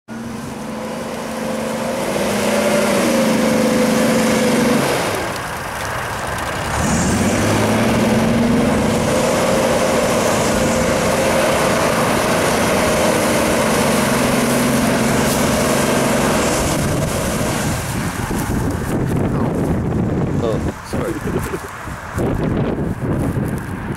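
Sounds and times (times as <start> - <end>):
suv engine revving hard: 0.2 - 5.4, 6.6 - 18.2.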